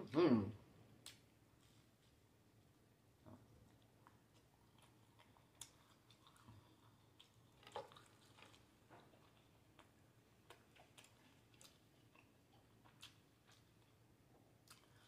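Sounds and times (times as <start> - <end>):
faint chewing: 3.2 - 15.0.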